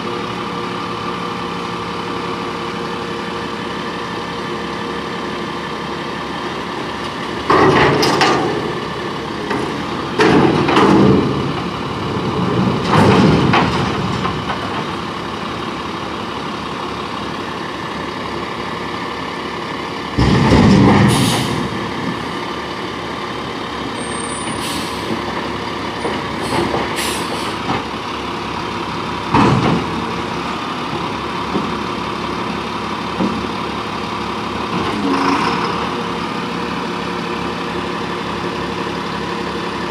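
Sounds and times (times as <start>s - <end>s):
diesel truck engine running: 0.0s - 39.9s
air brake hiss: 21.1s - 21.6s, 24.4s - 25.1s, 26.4s - 27.6s.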